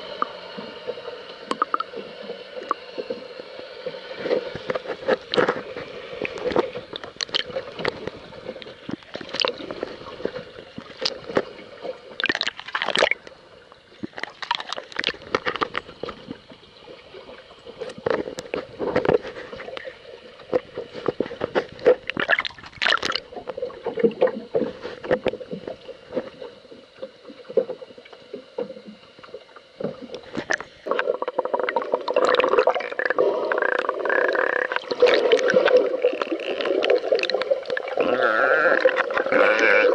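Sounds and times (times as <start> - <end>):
underwater rushing noise: 0.0 - 39.9
underwater clicks and knocks: 1.4 - 3.2, 4.2 - 16.6, 17.2 - 37.8.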